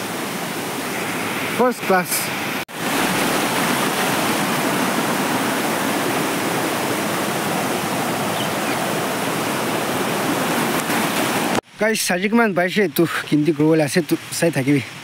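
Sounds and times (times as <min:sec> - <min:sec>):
stream water rushing: 0:00.0 - 0:15.0.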